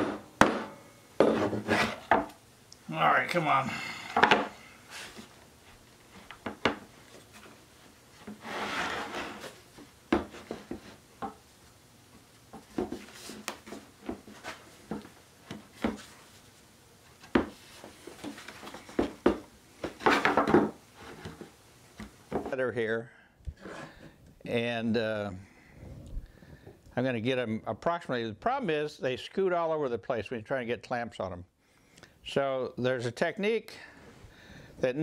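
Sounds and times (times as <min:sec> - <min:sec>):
wood scraping rubs: 0:01.2 - 0:02.1, 0:04.2 - 0:11.0.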